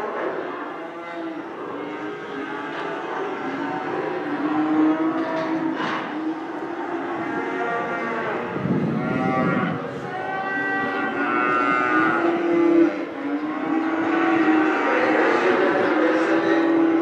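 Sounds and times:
cattle mooing: 0.4s - 17.0s.

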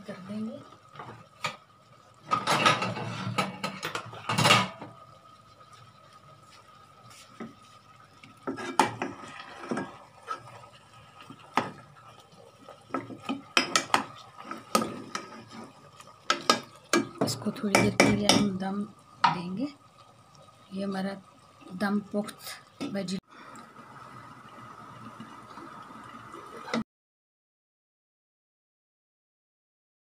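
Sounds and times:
spoon scraping a cooking pot: 8.4s - 10.7s, 12.9s - 18.5s.

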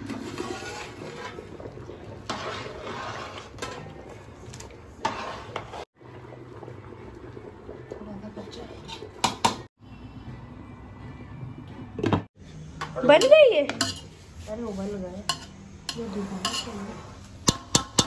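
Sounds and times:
water boiling in pot: 0.0s - 9.7s
metal spoon clinking against pot: 13.2s - 14.1s, 15.3s - 16.7s.

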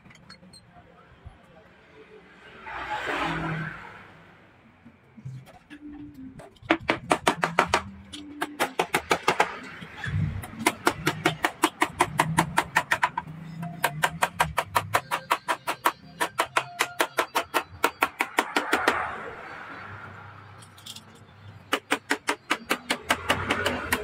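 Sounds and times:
hammer tapping steel punch on metal: 10.5s - 18.8s.

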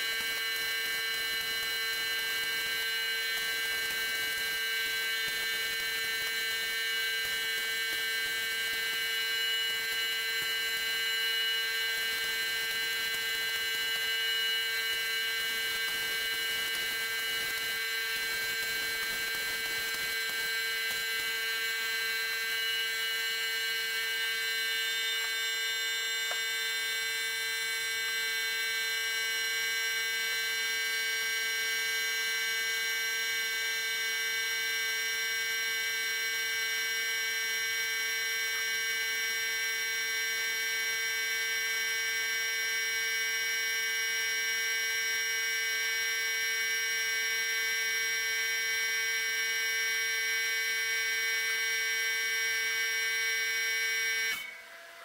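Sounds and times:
steady electrical hum: 0.0s - 29.0s.

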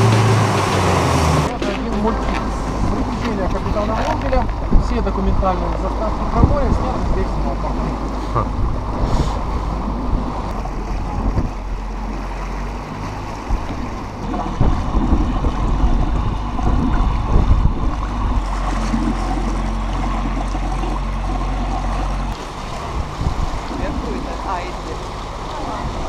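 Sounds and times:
wind buffeting microphone: 0.0s - 24.8s
motorboat engine humming: 0.0s - 26.0s
water rushing past hull: 0.0s - 26.0s.

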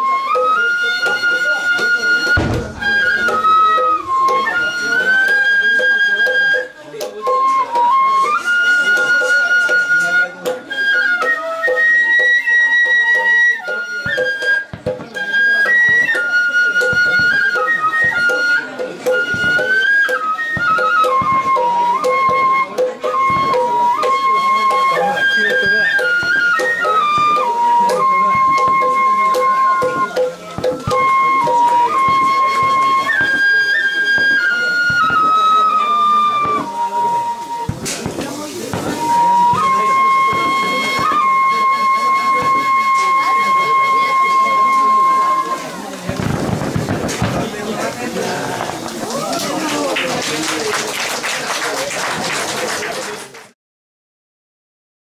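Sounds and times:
lower accompaniment: 0.0s - 6.7s, 15.2s - 50.1s
wind instrument slow melody: 0.0s - 50.1s.

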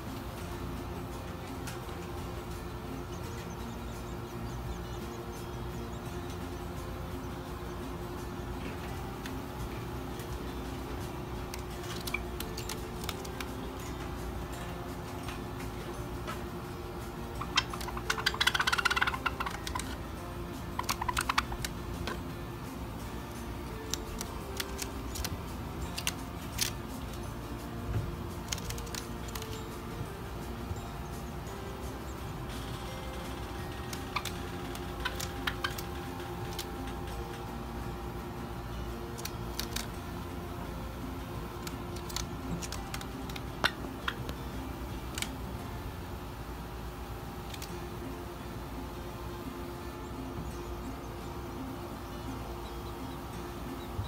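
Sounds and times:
birds clicking: 0.0s - 48.1s
steady low hum: 0.0s - 54.0s
bird feet tapping on paper: 20.8s - 22.2s, 23.9s - 27.2s, 28.0s - 29.6s, 33.8s - 36.9s, 41.6s - 44.3s.

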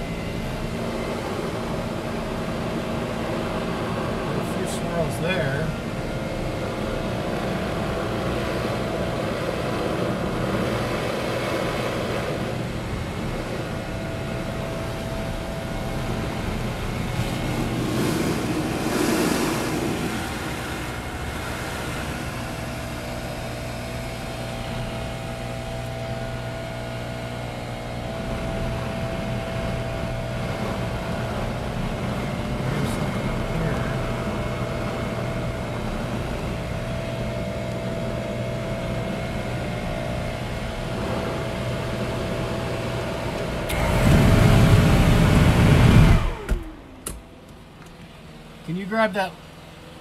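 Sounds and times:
muffled leaf blower running: 0.0s - 48.8s.

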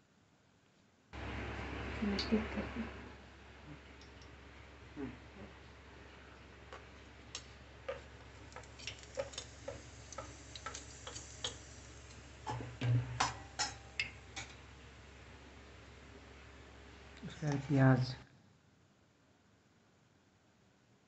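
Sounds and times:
seeds popping in hot oil: 6.7s - 14.6s.

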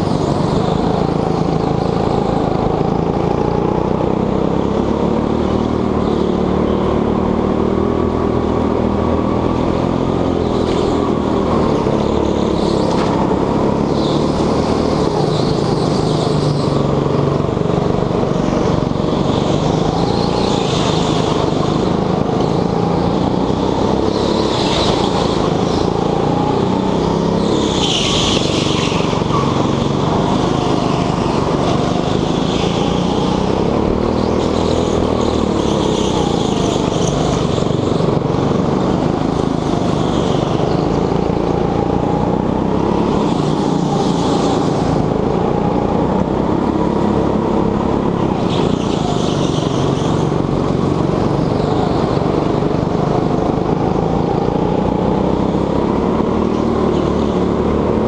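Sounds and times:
go-kart engine revving: 0.0s - 58.0s
tyre squeal: 18.6s - 38.4s, 48.3s - 50.5s.

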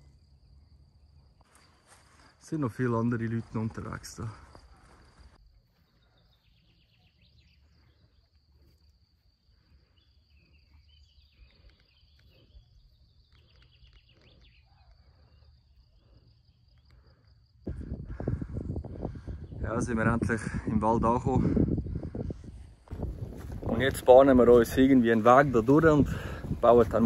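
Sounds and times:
high insect trill: 0.0s - 27.0s
wind noise on microphone: 17.6s - 27.0s.

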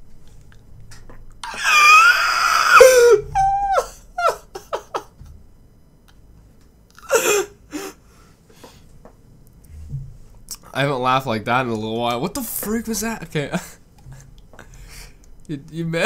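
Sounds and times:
man laughing uncontrollably: 2.8s - 5.2s.

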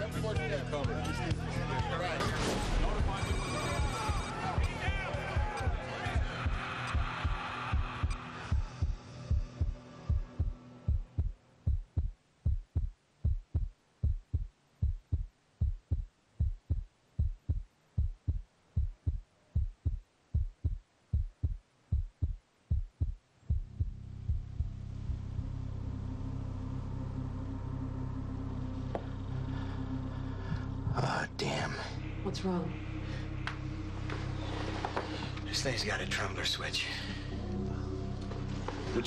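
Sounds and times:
heartbeat-like thumps: 6.2s - 25.5s
low droning hum: 23.5s - 39.0s.

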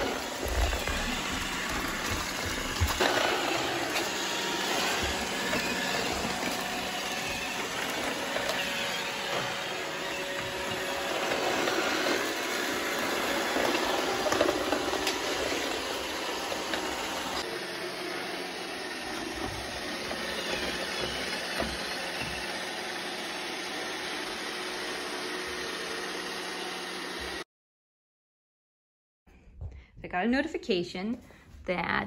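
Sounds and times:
robot vacuum whirring: 0.0s - 27.4s.

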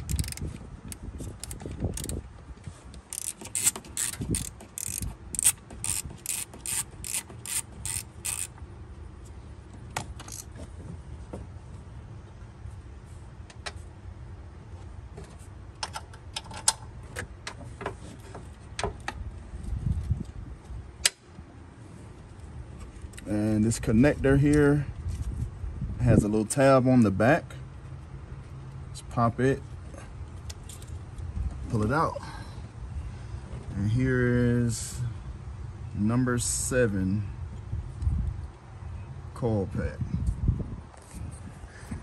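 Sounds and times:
socket ratchet clicking: 0.0s - 2.2s, 3.1s - 8.5s.

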